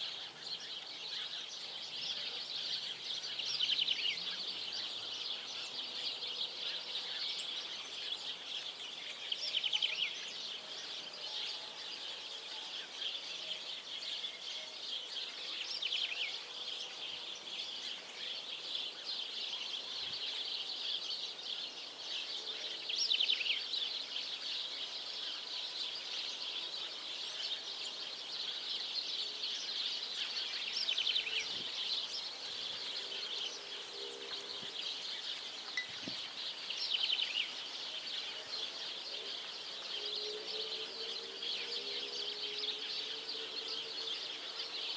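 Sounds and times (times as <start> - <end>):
birds chirping: 12.6 - 44.9.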